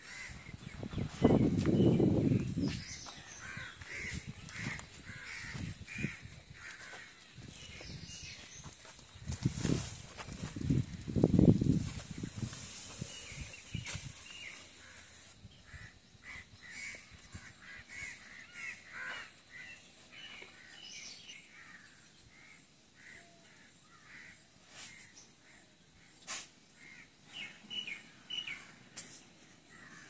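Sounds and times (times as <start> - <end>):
birds calling: 0.0 - 30.0.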